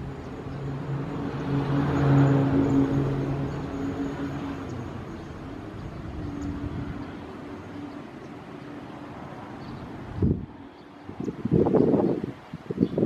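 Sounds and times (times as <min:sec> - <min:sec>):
diesel locomotive rumble: 0:00.0 - 0:09.0.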